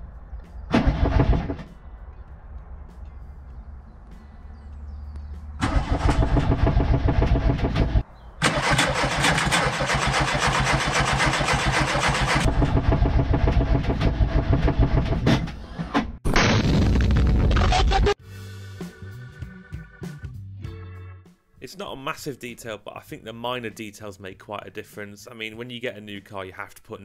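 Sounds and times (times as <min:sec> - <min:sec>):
starter motor cranking engine: 0:05.6 - 0:15.1.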